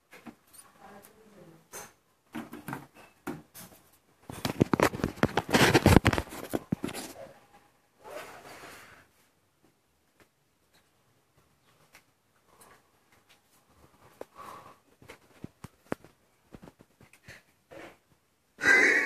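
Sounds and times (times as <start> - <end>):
phone handling rustle: 4.3 - 7.2.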